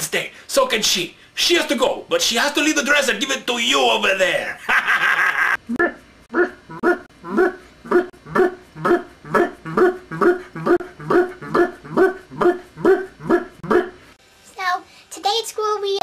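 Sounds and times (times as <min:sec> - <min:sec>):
person barking like a dog: 0:05.8 - 0:14.0.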